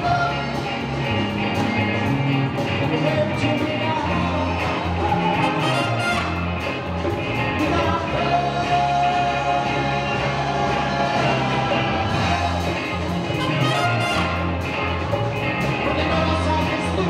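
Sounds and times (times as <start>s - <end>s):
bass guitar: 0.0s - 17.0s
drum kit: 0.0s - 17.0s
electric guitars: 0.0s - 17.0s
trumpet and trombone horn section: 5.2s - 6.7s, 13.2s - 14.7s
person singing: 7.6s - 13.9s.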